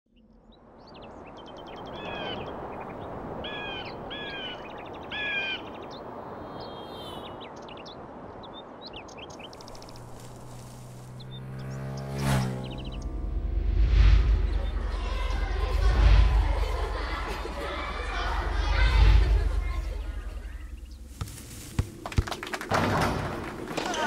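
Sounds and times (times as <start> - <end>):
small birds chirping and trilling: 0.1 - 13.2, 14.3 - 15.3, 19.8 - 21.6
bird harsh arched calls: 1.7 - 7.8.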